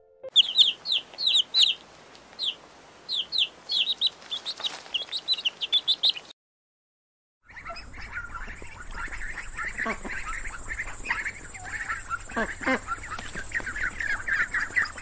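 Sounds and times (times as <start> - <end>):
chicks peeping: 0.3 - 6.3, 7.5 - 15.0
ducklings chirping: 0.3 - 6.3, 7.5 - 15.0.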